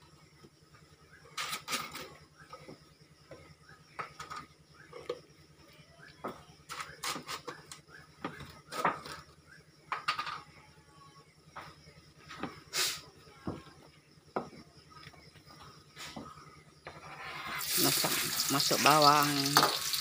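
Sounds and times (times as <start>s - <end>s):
pots and pans clinking: 17.8s - 20.0s.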